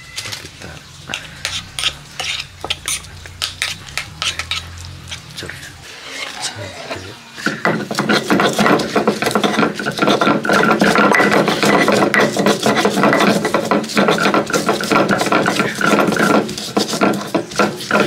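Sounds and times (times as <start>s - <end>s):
stone grinding on stone: 0.3s - 18.0s.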